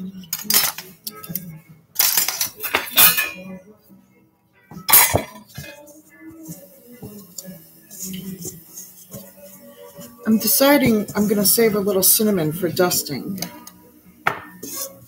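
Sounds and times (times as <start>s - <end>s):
utensils and dishes clinking: 0.0s - 3.6s, 4.8s - 5.9s.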